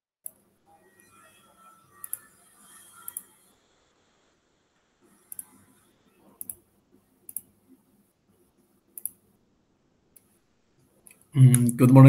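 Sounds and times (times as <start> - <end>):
faint computer mouse clicks: 5.3 - 5.6, 6.4 - 6.6, 7.3 - 7.5, 8.9 - 9.2.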